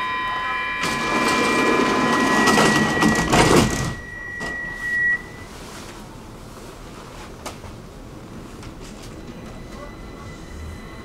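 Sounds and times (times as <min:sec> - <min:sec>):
high warning tone: 0:00.0 - 0:05.7, 0:09.0 - 0:11.0
station noise: 0:00.0 - 0:06.5, 0:08.0 - 0:11.0
hum inside train car: 0:00.0 - 0:11.0
train doors bumping shut: 0:00.9 - 0:04.6.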